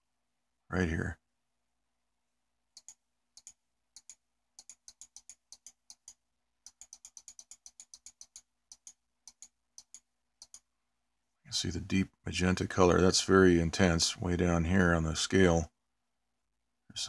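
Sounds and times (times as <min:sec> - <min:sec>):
computer mouse clicking: 0:02.8 - 0:10.7.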